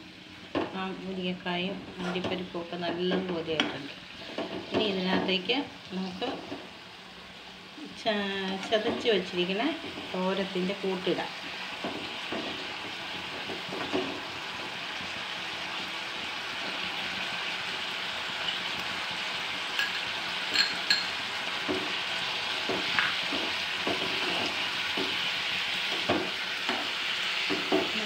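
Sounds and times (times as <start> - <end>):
food sizzling in a pan: 0.0 - 28.0
spoon scraping a pan: 1.9 - 5.4, 22.6 - 27.9
metal spoon clinking: 19.8 - 21.2.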